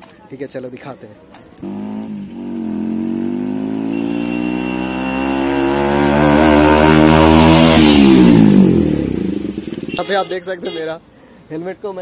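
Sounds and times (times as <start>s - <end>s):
motorcycle passing by: 1.6s - 9.9s.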